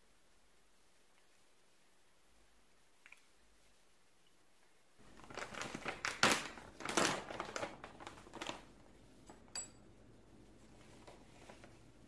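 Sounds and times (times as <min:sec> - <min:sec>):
crinkly bag rustling: 0:05.0 - 0:09.5, 0:10.5 - 0:12.0.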